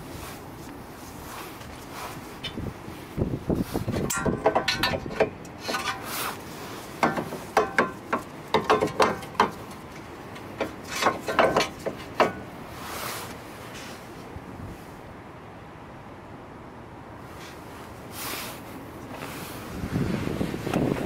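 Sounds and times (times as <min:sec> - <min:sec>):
metal tools clinking: 0:04.0 - 0:06.2.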